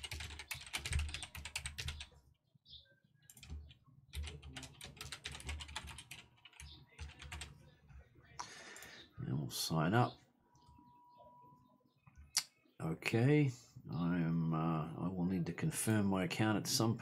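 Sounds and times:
typing on computer keyboard: 0.0 - 2.1, 3.2 - 7.6.

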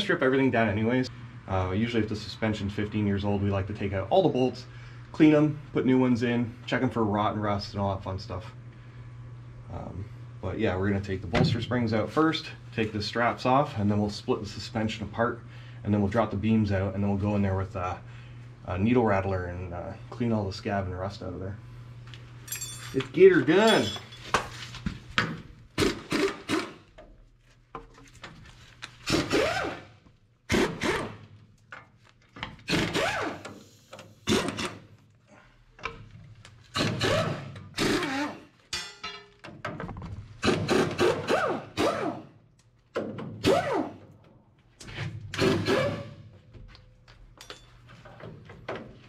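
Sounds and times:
air impact wrench hammering: 25.8 - 26.9, 30.5 - 31.3, 32.6 - 34.9, 36.7 - 39.1, 40.4 - 42.3, 45.3 - 46.2.

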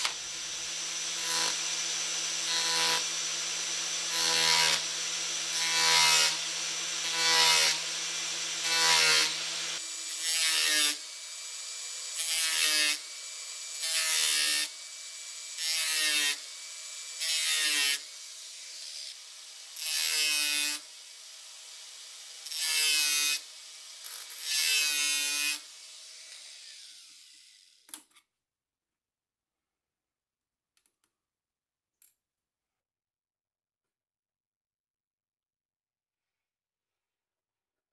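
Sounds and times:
grinder motor whirring: 0.0 - 13.0
angle grinder cutting steel: 0.0 - 27.9.

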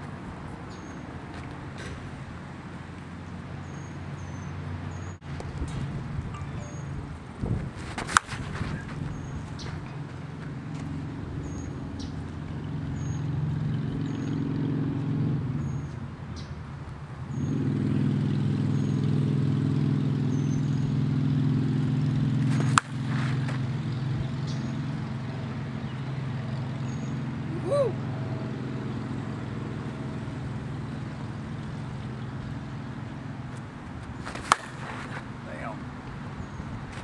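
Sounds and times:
bat hitting softball crack: 8.0 - 9.0, 22.4 - 23.7, 34.1 - 35.4.

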